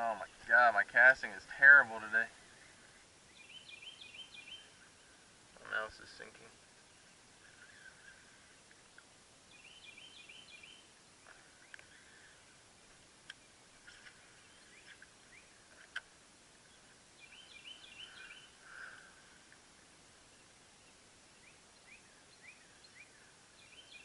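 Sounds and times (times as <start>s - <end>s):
songbird singing high notes: 2.6s - 4.8s, 9.5s - 10.9s, 17.2s - 18.6s, 20.8s - 24.0s
faint sharp clicks: 8.6s - 9.1s, 11.2s - 12.0s, 12.9s - 14.2s, 15.7s - 16.1s.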